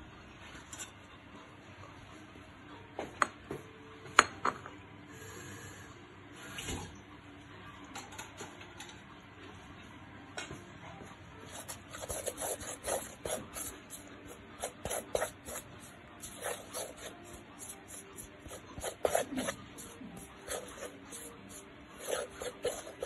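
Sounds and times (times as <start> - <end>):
dough being stirred in a bowl: 11.4 - 23.0.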